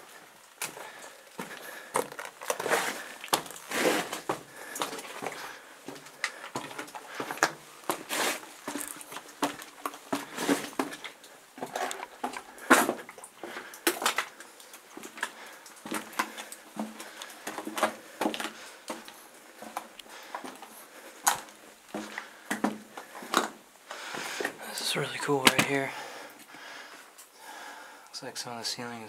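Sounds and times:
footsteps crunching on rock: 0:00.6 - 0:13.1.

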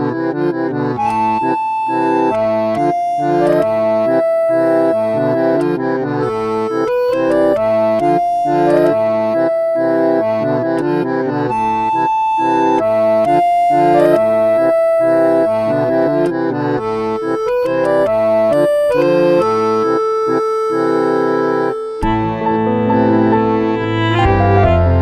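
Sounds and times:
instrumental background music: 0:00.0 - 0:25.0.

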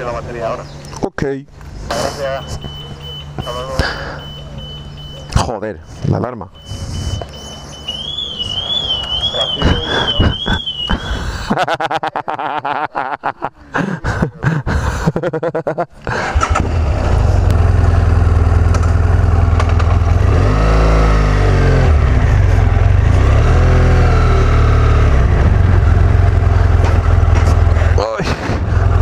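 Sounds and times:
motorcycle alarm warbling: 0:02.4 - 0:11.3
motorcycle engine running: 0:16.3 - 0:29.0.

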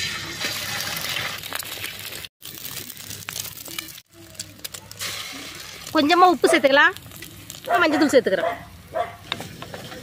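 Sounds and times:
eggs sizzling in hot oil: 0:00.0 - 0:10.0
eggshells cracking: 0:00.7 - 0:06.1.

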